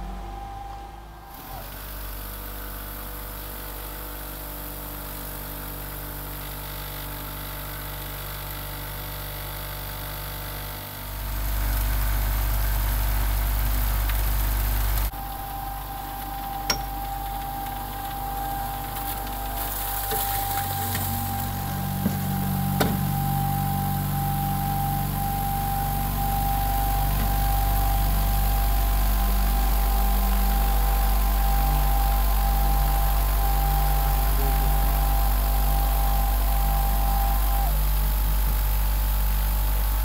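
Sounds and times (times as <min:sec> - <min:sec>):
motor humming: 0:08.3 - 0:40.0.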